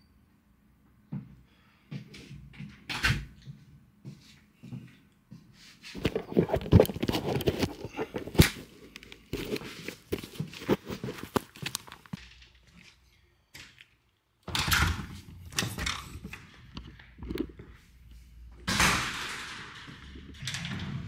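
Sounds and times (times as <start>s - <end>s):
scuffs knocks and clicks: 3.4s - 12.9s.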